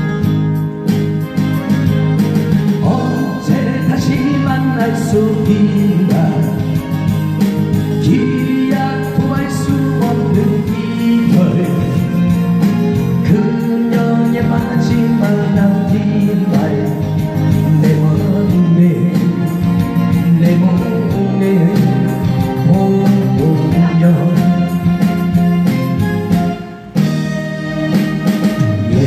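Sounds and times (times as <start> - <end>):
instrumental accompaniment: 0.0 - 29.0
man singing a slow ballad: 2.8 - 25.5, 28.8 - 29.0.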